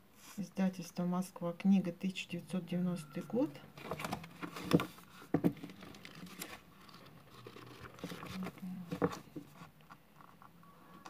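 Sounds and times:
book pages turning: 3.8 - 10.6.

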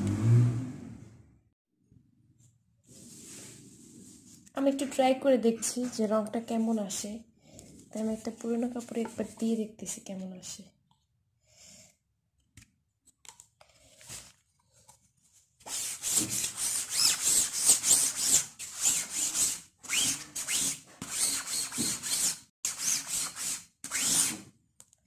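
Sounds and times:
scratchy rubbing through screen mesh: 2.9 - 4.4, 15.7 - 24.4.

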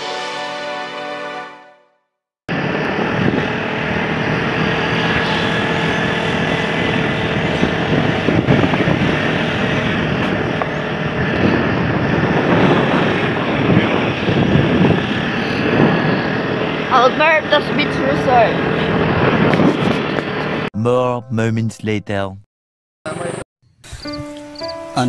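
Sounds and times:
motorcycle engine running: 2.5 - 20.6
wind noise on microphone: 2.5 - 20.7.

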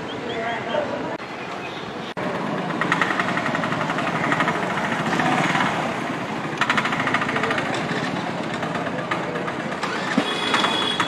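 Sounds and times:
rickshaw engine chugging: 2.2 - 11.0.

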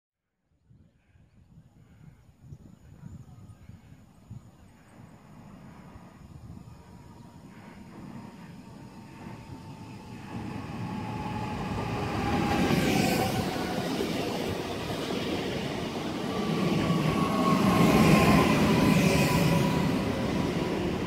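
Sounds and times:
train wheels rumbling on rails: 4.8 - 21.0.

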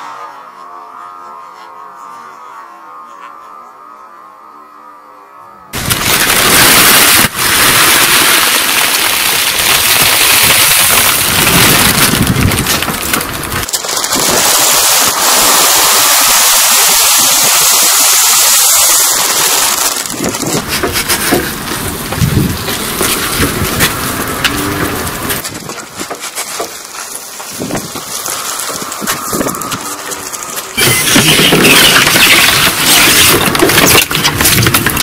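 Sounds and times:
tyre crushing plastic packets: 5.8 - 15.5, 19.1 - 35.0.

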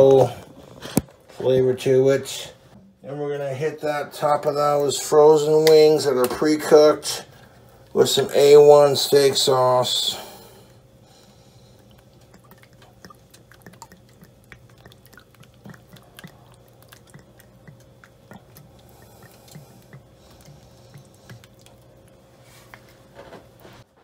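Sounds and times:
low steady hum: 0.0 - 24.0
sauce dripping and splatting: 11.8 - 22.3.

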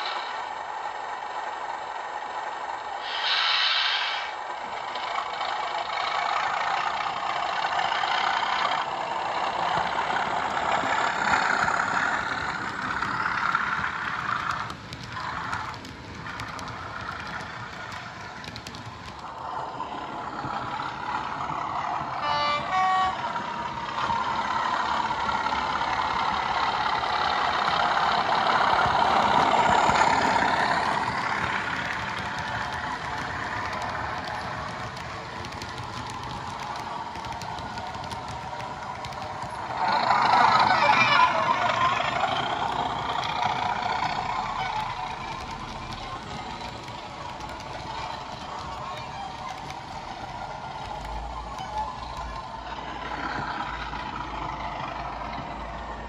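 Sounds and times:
train horn blast: 22.2 - 23.3
diesel engine sound from small speaker: 36.2 - 56.0.

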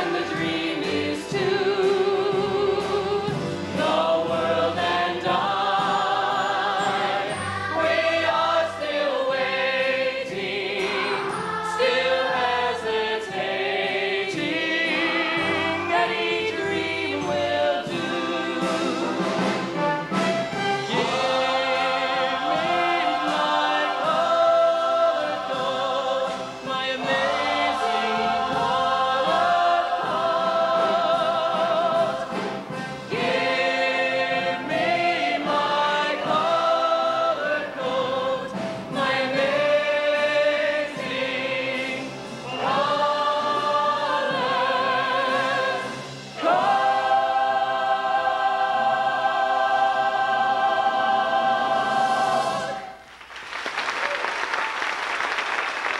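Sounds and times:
cast and choir singing: 0.0 - 53.1
audience applause: 53.1 - 55.9.

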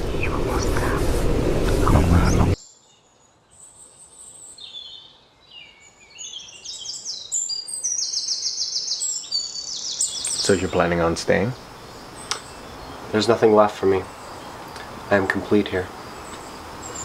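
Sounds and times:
songbirds singing: 0.0 - 17.0
bird trills: 2.6 - 10.8.

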